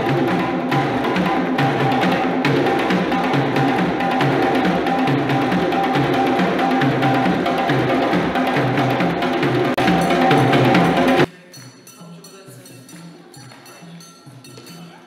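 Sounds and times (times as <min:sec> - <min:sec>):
djembe drums playing: 0:00.0 - 0:11.3
quieter drum rhythm: 0:00.0 - 0:15.0.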